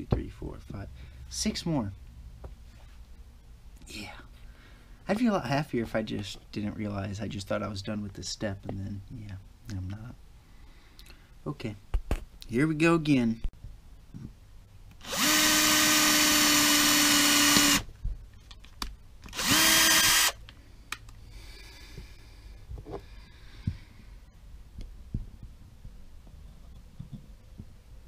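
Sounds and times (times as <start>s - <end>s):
electric drill whine: 15.0s - 17.9s, 19.3s - 20.4s.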